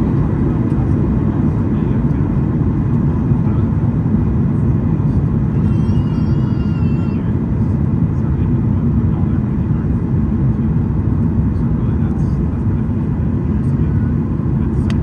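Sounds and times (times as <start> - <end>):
jet engines roaring in cabin: 0.0 - 15.0.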